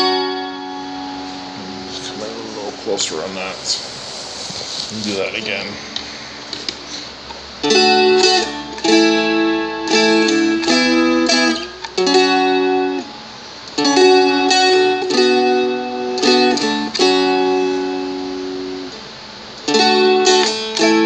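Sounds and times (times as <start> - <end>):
strummed dulcimer chords: 0.0 - 3.9.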